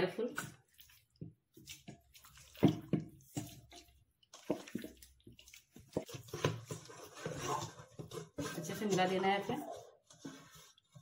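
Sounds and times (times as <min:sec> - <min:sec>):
wet plops and squelches: 0:00.2 - 0:06.9
hand scraping steel bowl: 0:01.6 - 0:11.0.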